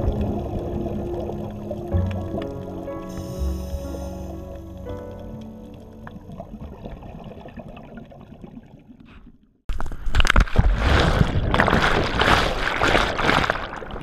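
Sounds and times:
muffled underwater rumble: 0.0 - 9.2
water splashing and sloshing: 0.0 - 14.0.

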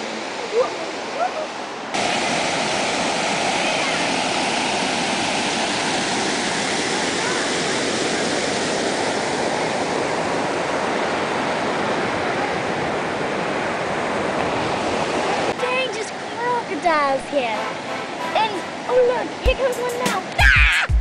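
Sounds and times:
waterfall rushing over rocks: 0.0 - 9.5.

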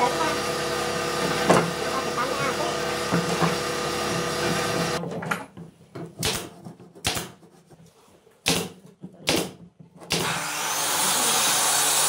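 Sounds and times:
steady machine noise: 0.0 - 5.0.

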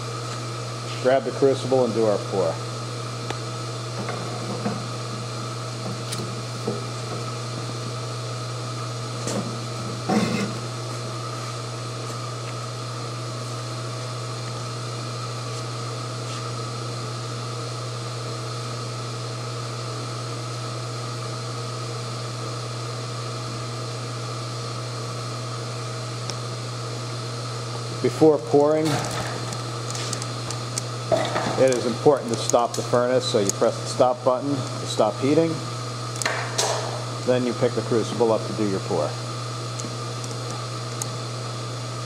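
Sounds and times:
electrical hum with fan noise: 0.0 - 42.0.

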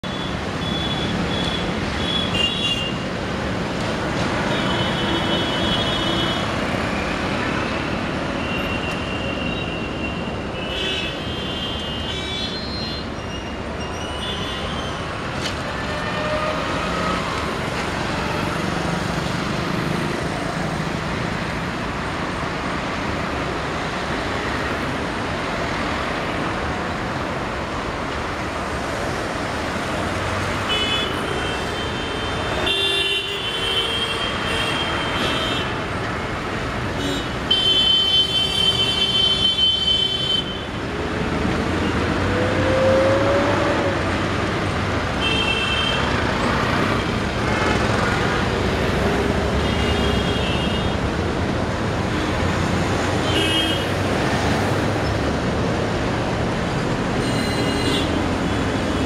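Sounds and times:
hum of engines and tyres: 0.0 - 59.0
cars and motorcycles passing: 15.1 - 32.6, 40.6 - 59.0.

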